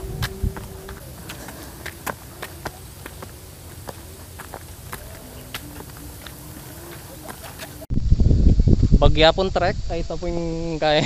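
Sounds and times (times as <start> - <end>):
footsteps crunching on dirt road: 0.0 - 7.9
steady outdoor hiss: 0.0 - 11.0.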